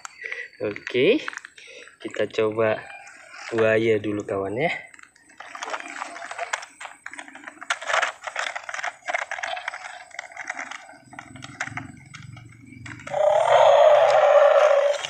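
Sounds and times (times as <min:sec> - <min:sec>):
toy clicking and clattering on asphalt: 0:00.0 - 0:15.0
loud electronic toy sound: 0:12.9 - 0:15.0.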